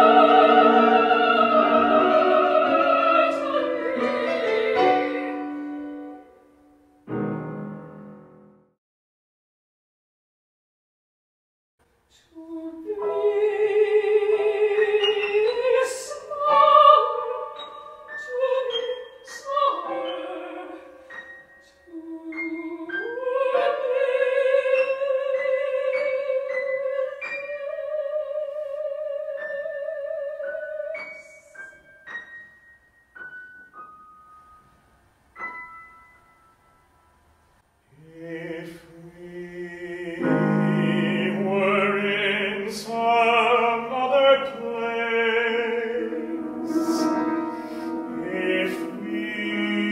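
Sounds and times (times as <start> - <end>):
soprano singing operatic line: 0.0 - 6.8, 12.2 - 32.0, 38.0 - 49.9
piano accompaniment: 0.0 - 8.8, 12.9 - 37.6, 40.1 - 49.9
man singing: 37.9 - 49.9.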